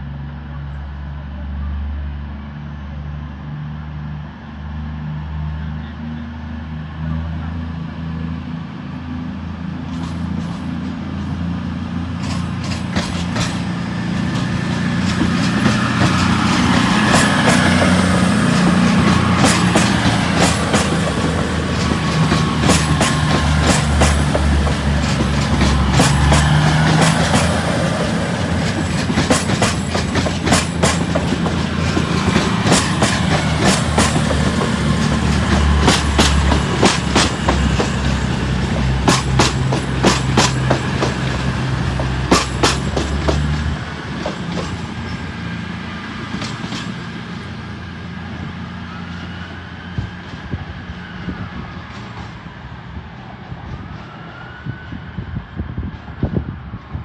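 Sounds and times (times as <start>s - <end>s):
diesel train engine drone: 0.0s - 57.0s
train wheels clattering: 12.1s - 47.2s.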